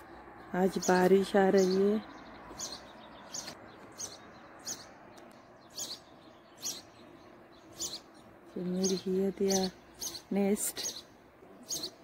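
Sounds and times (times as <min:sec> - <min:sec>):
small bird chirping: 0:00.0 - 0:12.0.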